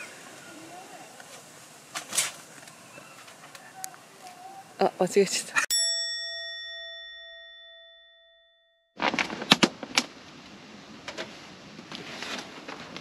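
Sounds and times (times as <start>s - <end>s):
background hiss: 0.0s - 5.6s
bell-like ding: 5.7s - 9.0s.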